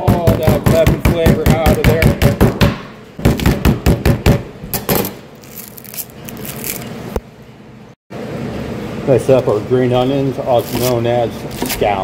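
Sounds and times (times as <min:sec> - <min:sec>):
rustling of stalks: 0:05.4 - 0:07.0.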